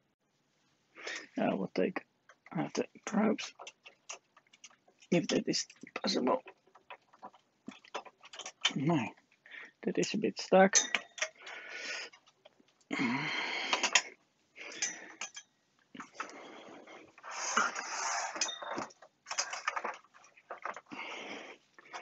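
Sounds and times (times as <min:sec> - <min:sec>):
metal device scraping and rubbing: 0:17.2 - 0:20.7.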